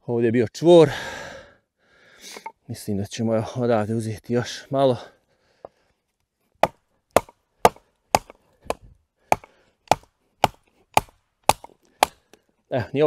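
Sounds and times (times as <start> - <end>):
baton striking knife spine: 6.6 - 12.2.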